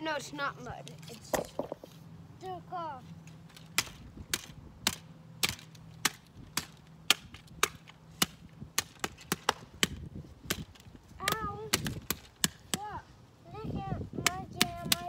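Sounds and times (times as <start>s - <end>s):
hammering blows: 3.6s - 13.0s.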